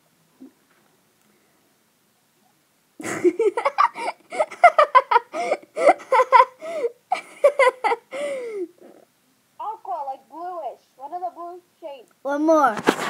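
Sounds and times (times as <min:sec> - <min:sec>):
girl giggling: 0:03.0 - 0:08.8.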